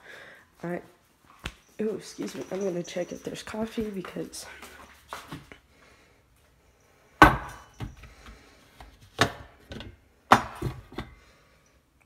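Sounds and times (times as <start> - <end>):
knocks of kitchen things handled: 7.2 - 8.1, 9.0 - 11.2.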